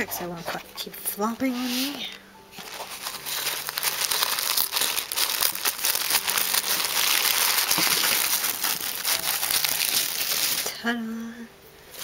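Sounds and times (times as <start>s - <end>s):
tissue paper crinkling: 1.4s - 10.8s.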